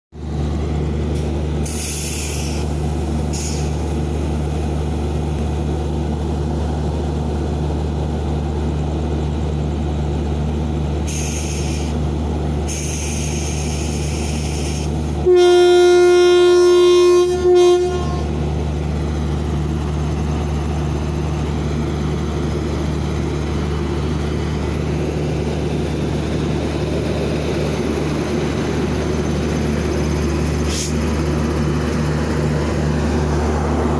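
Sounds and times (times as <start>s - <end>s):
locomotive humming: 0.2s - 33.9s
short high hisses: 1.6s - 3.8s, 11.1s - 12.0s, 12.7s - 15.0s, 30.6s - 31.0s
train horn blast: 15.2s - 18.4s.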